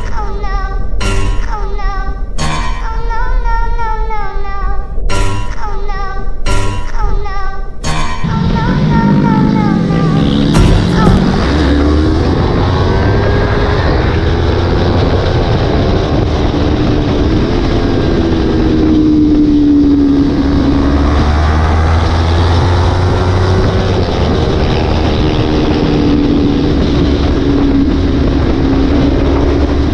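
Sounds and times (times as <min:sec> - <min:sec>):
heavy wind noise: 0:00.0 - 0:29.9
motorcycle engine running: 0:08.3 - 0:29.9.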